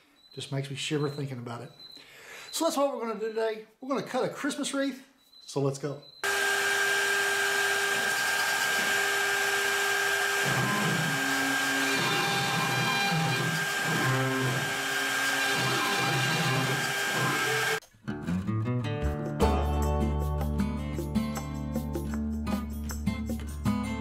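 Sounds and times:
router spindle high whine: 0:06.2 - 0:17.8
stepper motors pitch-shifting tones: 0:06.2 - 0:17.8.

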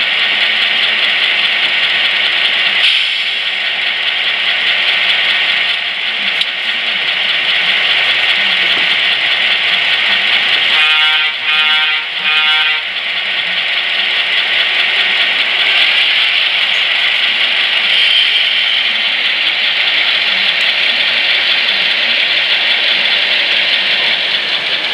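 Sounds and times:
model locomotive engine idle sound: 0:00.0 - 0:24.9.

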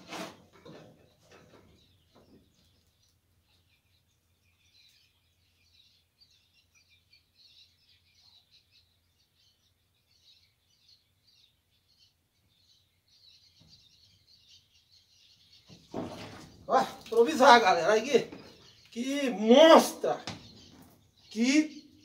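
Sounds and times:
faint bird chirps: 0:01.1 - 0:22.0.

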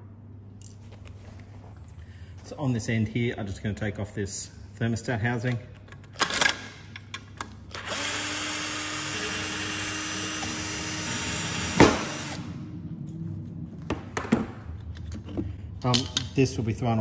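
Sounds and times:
cordless drill whirring: 0:07.7 - 0:12.5.

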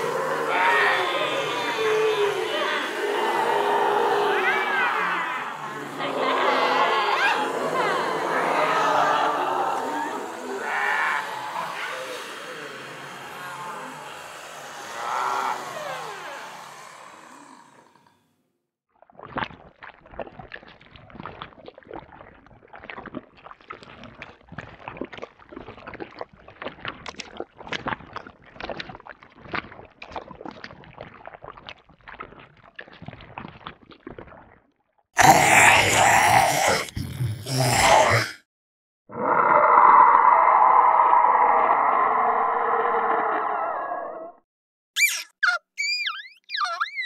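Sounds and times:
loud creature groan: 0:00.0 - 0:18.1, 0:35.2 - 0:38.4, 0:39.1 - 0:44.4
noisy creature sound: 0:00.0 - 0:18.1, 0:35.2 - 0:38.4, 0:39.1 - 0:44.4, 0:45.0 - 0:47.0.

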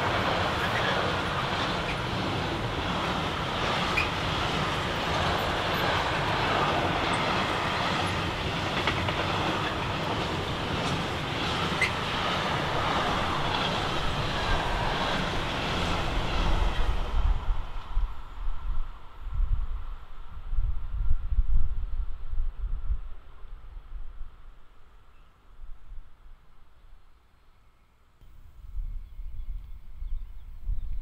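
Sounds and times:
train wheels rumbling on rail: 0:00.0 - 0:24.0
high wheel squeaks: 0:03.8 - 0:04.3, 0:11.6 - 0:12.2.

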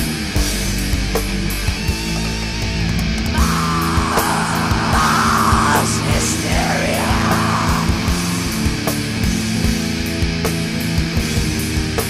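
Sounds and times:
metal music: 0:03.2 - 0:11.9.

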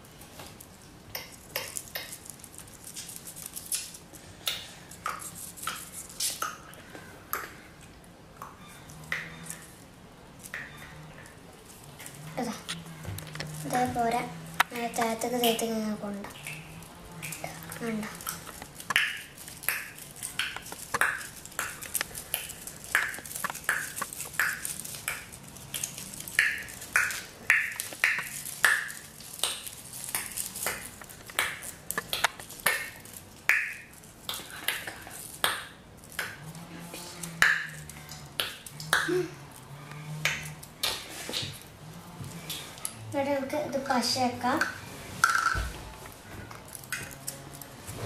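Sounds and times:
paper crackling and crinkling: 0:11.3 - 0:42.8.

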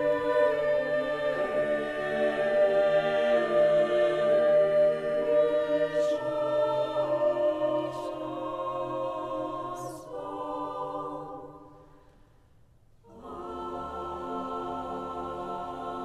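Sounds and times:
mixed choir singing chords: 0:00.0 - 0:12.2, 0:13.0 - 0:16.0.

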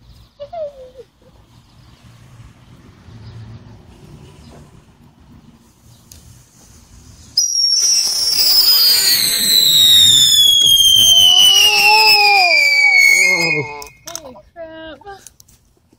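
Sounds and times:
whistling firework: 0:07.0 - 0:14.2.

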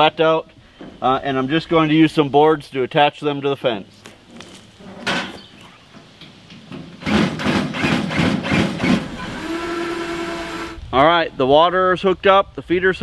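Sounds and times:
knocks and scrapes on wooden pallet: 0:04.1 - 0:09.0.

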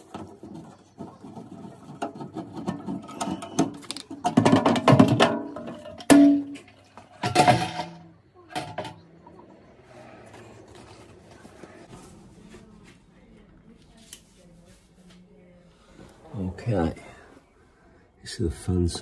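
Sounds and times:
sheet metal scrapes and rattles: 0:00.0 - 0:09.0.

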